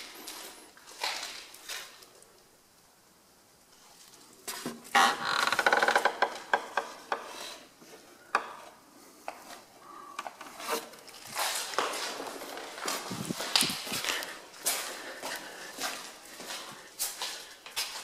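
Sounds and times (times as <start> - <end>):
footsteps crunching on gritty debris: 0.0 - 2.1, 11.0 - 18.0.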